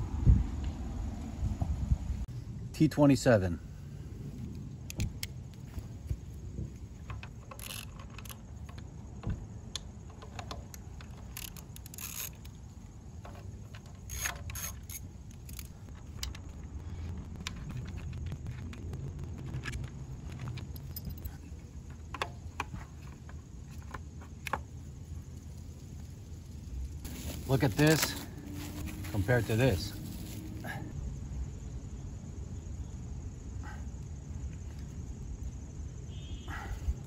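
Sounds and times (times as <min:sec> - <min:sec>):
low steady rumble: 0:00.0 - 0:36.1
screwdriver clicks and screws jingling: 0:07.0 - 0:08.9, 0:10.1 - 0:12.6, 0:13.2 - 0:16.5.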